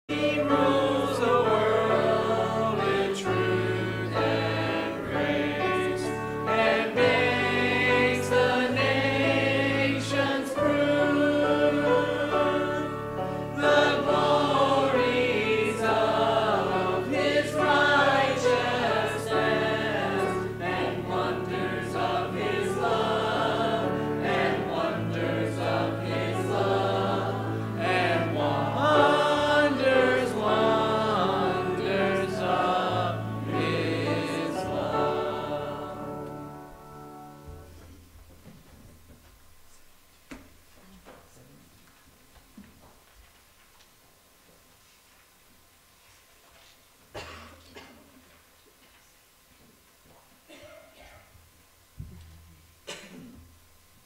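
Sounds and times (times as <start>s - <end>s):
choir singing a hymn: 0.1s - 37.8s.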